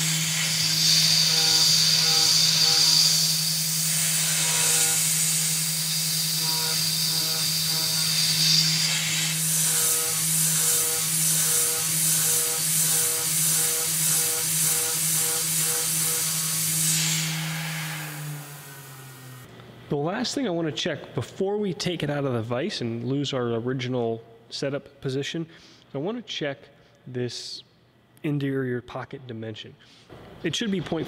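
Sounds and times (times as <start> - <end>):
end mill cutting aluminum hiss: 0.0 - 19.4
mill spindle hum: 0.0 - 19.5.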